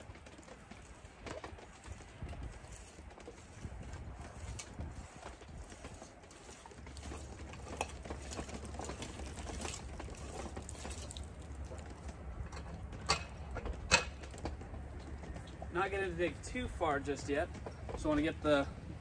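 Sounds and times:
auger scraping in soil: 0:01.6 - 0:11.8.

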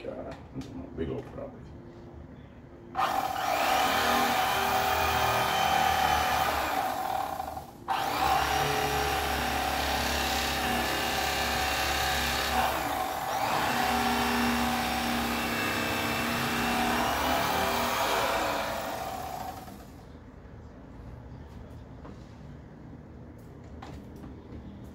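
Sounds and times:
electric knife motor buzzing: 0:03.0 - 0:20.0.

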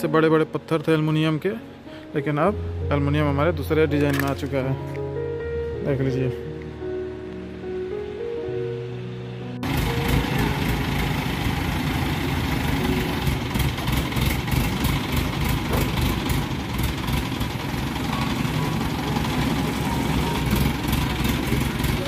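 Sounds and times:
diesel engine running: 0:09.2 - 0:22.0.

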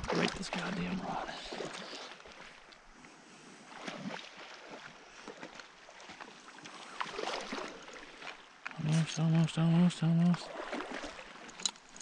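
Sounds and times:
fish splashing and thrashing: 0:00.0 - 0:02.9, 0:03.8 - 0:09.1, 0:10.4 - 0:12.0
steady water noise: 0:00.0 - 0:12.0.

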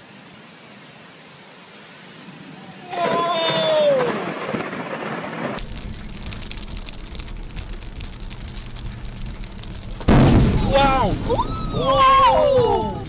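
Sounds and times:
heavy rain: 0:00.0 - 0:13.0
thunder rumbling: 0:03.0 - 0:13.0.

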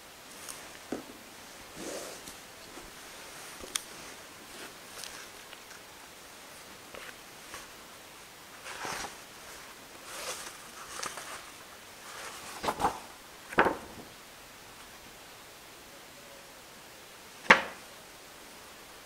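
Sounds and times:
book pages rustling: 0:01.7 - 0:07.8, 0:08.5 - 0:14.1.

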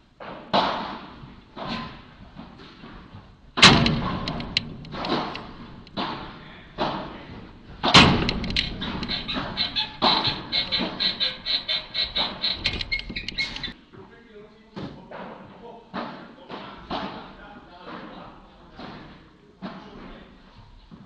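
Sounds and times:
padel ball hits with echo: 0:03.6 - 0:10.9.

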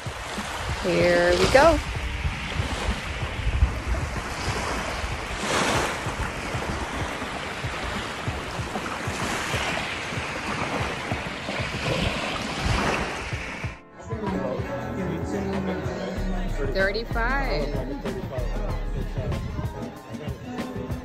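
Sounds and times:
small waves lapping on beach: 0:00.0 - 0:13.8
wind buffeting microphone: 0:00.0 - 0:13.8, 0:19.1 - 0:19.8.

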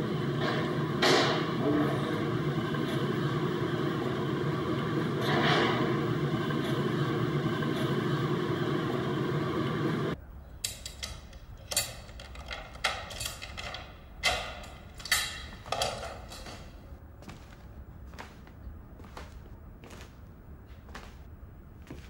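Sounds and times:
steady dense noise: 0:13.5 - 0:22.0.

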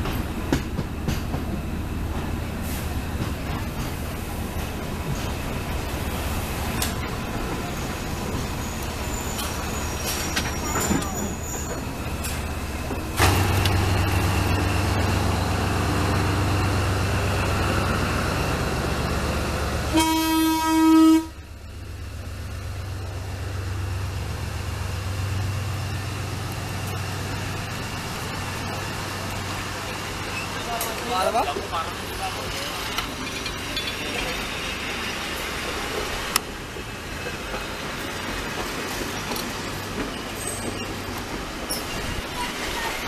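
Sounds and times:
diesel locomotive engine drone: 0:00.0 - 0:43.0
train horn blast: 0:19.9 - 0:21.4.

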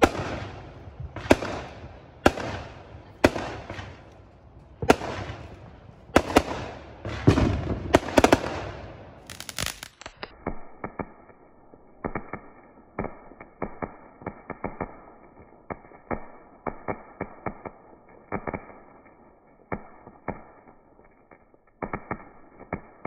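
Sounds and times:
firework crackling pops: 0:00.0 - 0:23.0
firework hissing: 0:09.2 - 0:10.3.

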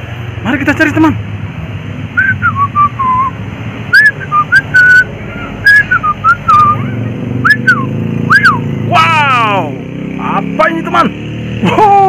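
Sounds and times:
person whistling a tune: 0:02.2 - 0:08.6.

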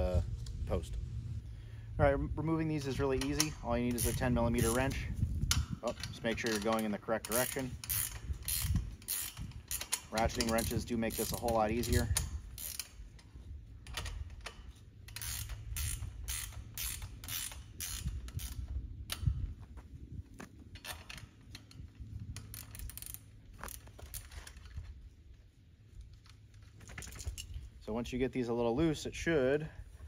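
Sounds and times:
ratcheting wrench clicking: 0:02.8 - 0:19.5, 0:20.8 - 0:24.9.

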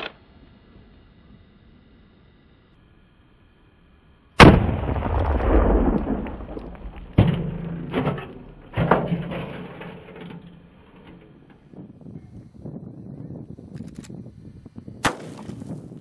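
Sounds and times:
rifle shot: 0:04.4 - 0:09.0, 0:15.0 - 0:15.6.

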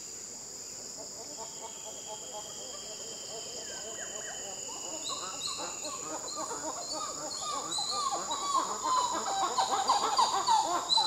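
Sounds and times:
monkeys calling: 0:05.0 - 0:11.0.

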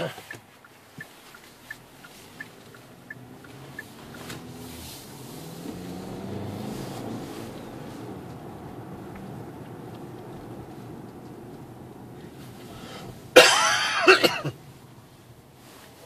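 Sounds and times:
turn signal relay ticking: 0:00.0 - 0:05.8, 0:07.5 - 0:13.4
car engine accelerating: 0:00.6 - 0:16.0.

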